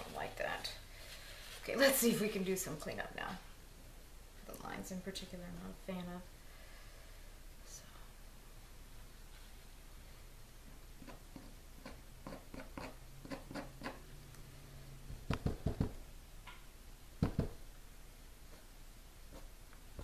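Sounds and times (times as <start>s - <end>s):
art tools tapping and clicking: 15.3s - 16.6s, 17.2s - 17.6s.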